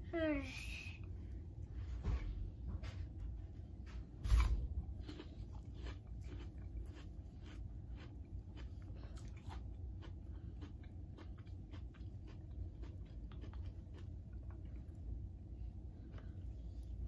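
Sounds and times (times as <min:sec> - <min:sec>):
low steady hum: 0:00.0 - 0:17.0
apple slices being chewed: 0:03.9 - 0:17.0.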